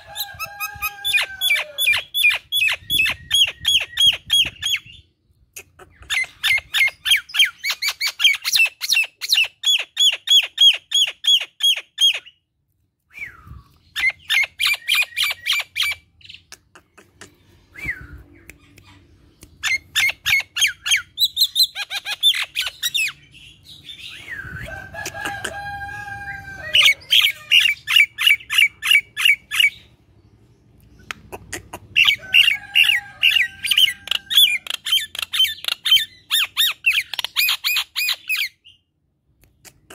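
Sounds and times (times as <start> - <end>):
myna bird chattering calls: 30.9 - 38.5.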